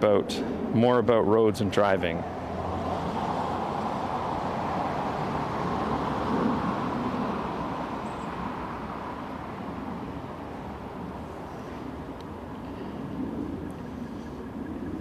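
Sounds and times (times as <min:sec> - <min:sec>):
passing road vehicles: 0:00.0 - 0:15.0.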